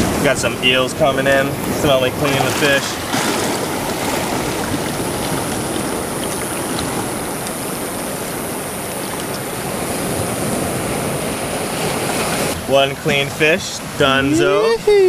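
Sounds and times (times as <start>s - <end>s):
surf washing over rocks: 0.0s - 15.0s.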